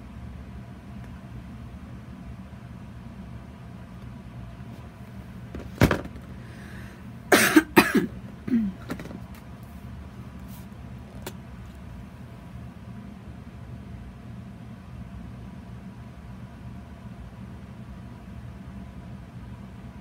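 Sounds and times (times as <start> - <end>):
steady low hum: 0.0 - 20.0
person coughing: 7.3 - 9.0
throat clearing: 7.3 - 9.0.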